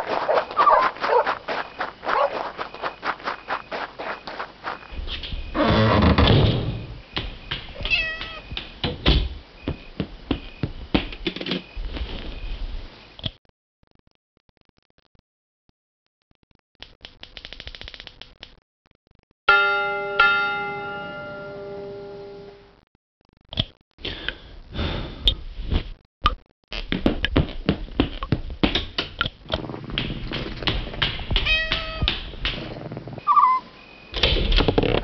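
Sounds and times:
cat meowing: 7.8s - 8.5s, 31.4s - 32.2s
struck ringing tones: 19.5s - 22.7s
knocks and clatter: 26.9s - 33.0s, 34.2s - 35.0s.

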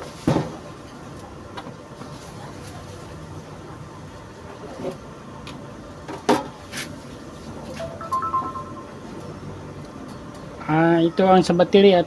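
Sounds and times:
two-tone electronic beep: 7.8s - 9.2s.

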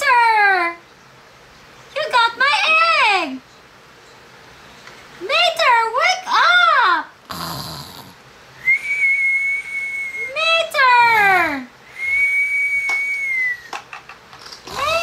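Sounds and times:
voiced snore gliding downward: 7.3s - 8.2s
long steady whistle: 8.6s - 10.4s, 11.8s - 13.8s.

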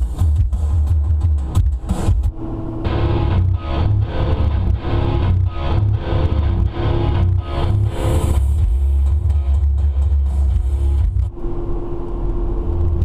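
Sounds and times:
deep bass: 0.0s - 13.0s
guitar chords: 0.1s - 13.0s.

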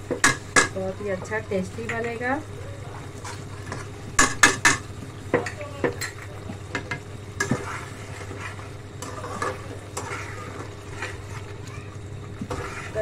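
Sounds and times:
curry sizzling: 0.0s - 13.0s
spatula clanking on pan: 0.1s - 0.8s, 3.2s - 7.7s
metal spatula scraping a pan: 3.1s - 4.5s, 7.4s - 11.6s, 12.3s - 13.0s.

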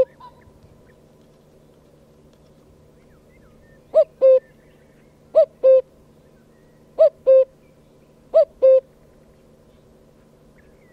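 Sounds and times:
cuckoo calling: 0.0s - 1.0s, 3.0s - 9.0s.

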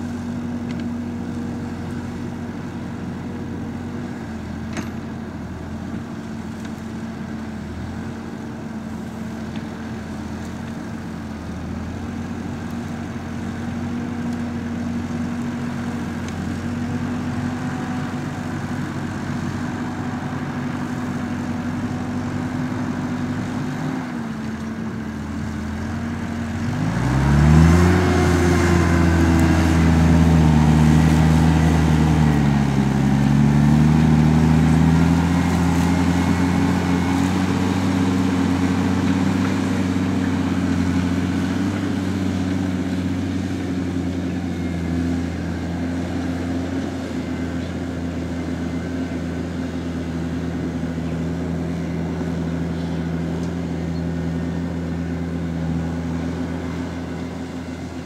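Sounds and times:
tractor diesel engine under load: 0.0s - 58.0s.

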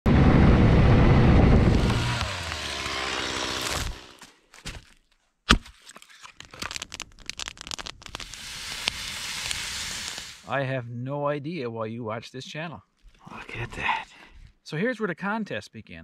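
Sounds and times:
snowmobile engine running: 0.1s - 4.2s
hatchet splitting log: 1.6s - 6.8s.

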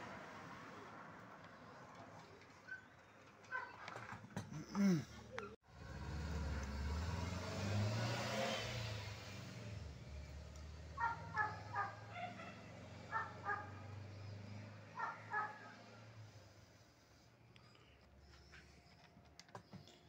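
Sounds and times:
vehicle passing by: 0.0s - 2.4s, 5.6s - 17.3s.

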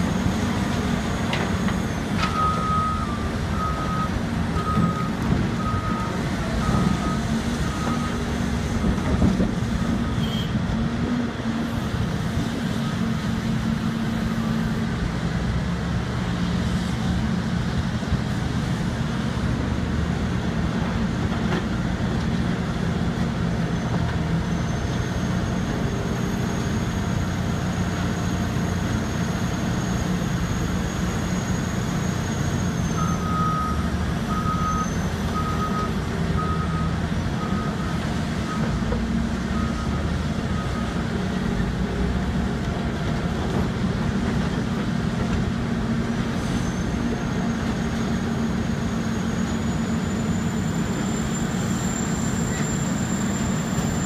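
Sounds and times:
heavy diesel engines running: 0.0s - 54.0s
reversing alarm beeping: 2.2s - 8.3s, 32.6s - 38.8s, 39.5s - 41.2s.

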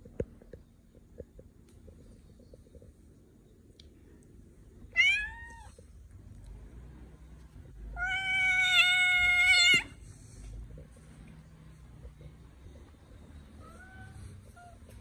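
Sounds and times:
cat meowing: 4.9s - 5.8s, 7.9s - 10.0s, 13.6s - 14.8s.

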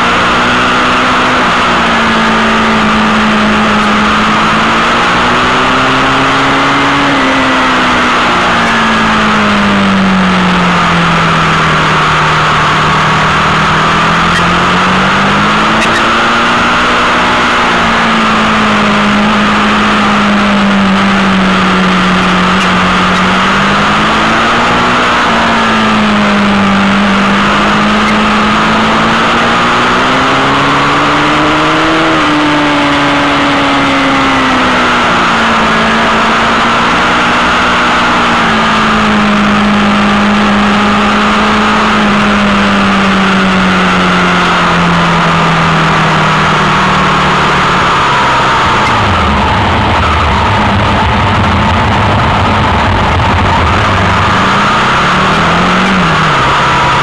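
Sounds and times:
motorcycle engine: 0.0s - 57.0s
wind noise: 48.0s - 57.0s.

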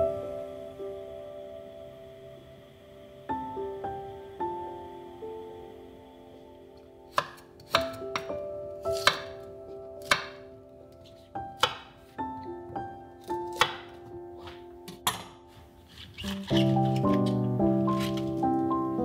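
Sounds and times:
soft background music: 0.0s - 19.0s
knife chopping on wooden board: 7.1s - 8.3s, 9.0s - 9.4s, 10.0s - 10.4s, 11.6s - 11.9s, 13.5s - 15.3s.

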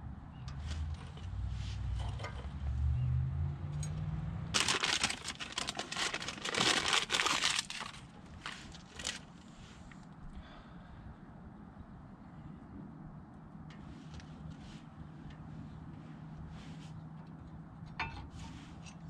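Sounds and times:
scratchy crinkling and scraping: 4.5s - 10.0s.

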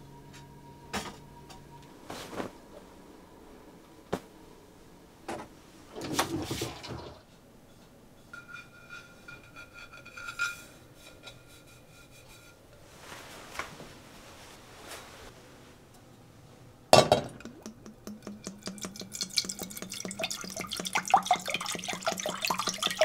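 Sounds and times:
pot knocking on wooden table: 17.0s - 21.2s.

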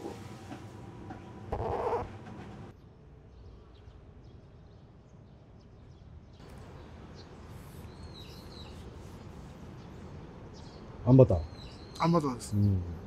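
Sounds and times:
bird chirping: 2.8s - 12.9s.

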